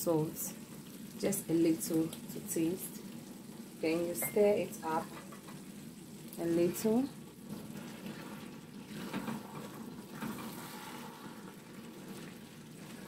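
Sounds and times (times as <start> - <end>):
spatula stirring thick stew: 7.3 - 13.0.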